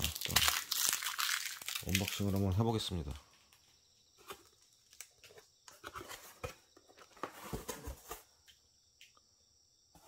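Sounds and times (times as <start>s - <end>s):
cardboard box flaps rustling: 5.8s - 8.3s.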